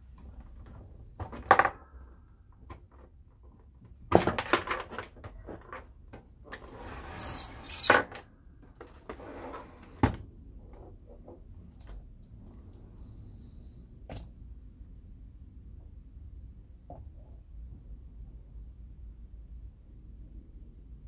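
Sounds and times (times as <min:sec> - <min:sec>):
plastic case knocking and rattling: 0:00.6 - 0:02.0, 0:02.6 - 0:06.3
case scraping across table: 0:06.5 - 0:08.0, 0:08.8 - 0:10.0.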